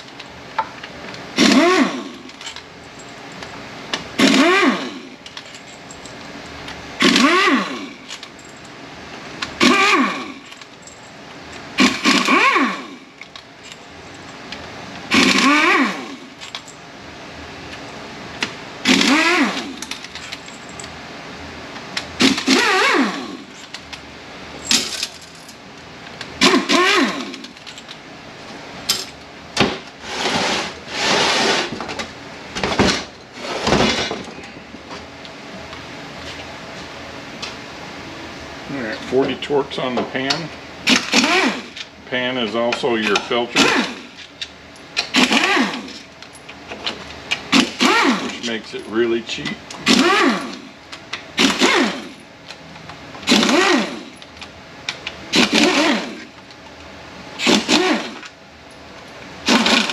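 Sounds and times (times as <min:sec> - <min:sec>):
power tool motor whirring: 0:01.4 - 0:02.2, 0:04.2 - 0:05.0, 0:07.0 - 0:07.9, 0:15.1 - 0:16.2, 0:18.9 - 0:19.8, 0:22.2 - 0:23.4, 0:26.4 - 0:27.4, 0:40.9 - 0:41.8, 0:45.1 - 0:46.0, 0:49.8 - 0:50.7, 0:51.4 - 0:52.2, 0:53.3 - 0:54.1, 0:55.3 - 0:56.3, 0:57.4 - 0:58.2
metal bolts clinking: 0:19.8 - 0:21.0.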